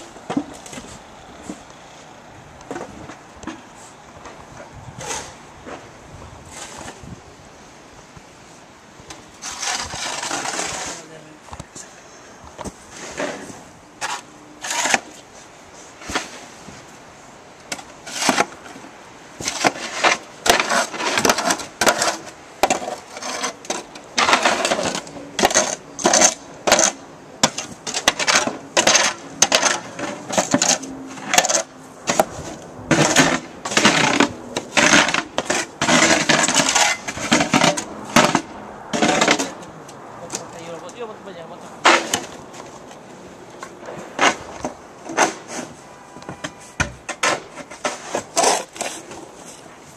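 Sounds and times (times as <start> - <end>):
snow shovel scraping and knocking: 6.5 - 7.1, 9.4 - 11.4, 12.6 - 16.9, 17.7 - 18.8, 19.4 - 39.6, 41.8 - 42.8, 43.9 - 49.9.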